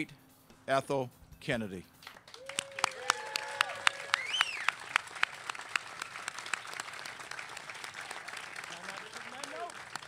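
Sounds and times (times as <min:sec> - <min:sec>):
audience applauding: 0:02.2 - 0:10.0.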